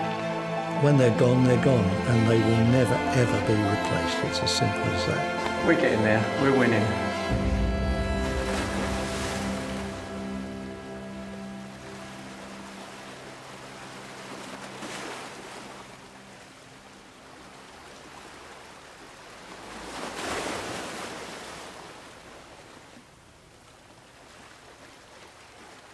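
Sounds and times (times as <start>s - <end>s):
held music chord: 0.0s - 16.9s
sea waves washing: 0.7s - 23.1s.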